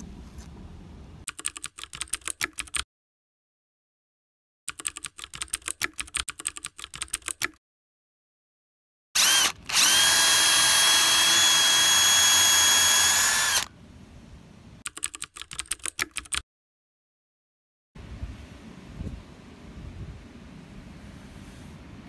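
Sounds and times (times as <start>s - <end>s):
keyboard typing clicks: 1.3s - 2.8s, 4.7s - 7.6s, 14.9s - 16.4s
power drill boring into wood: 9.2s - 13.7s.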